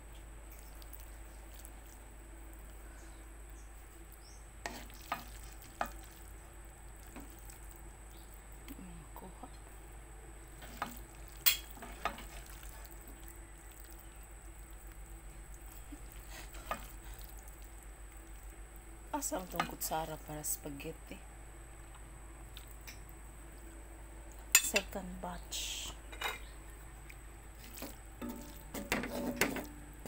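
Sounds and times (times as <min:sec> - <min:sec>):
spaghetti being stirred: 0:03.9 - 0:08.7, 0:10.4 - 0:18.6, 0:27.5 - 0:29.8
food frying in a pan: 0:04.6 - 0:08.6, 0:10.4 - 0:20.1.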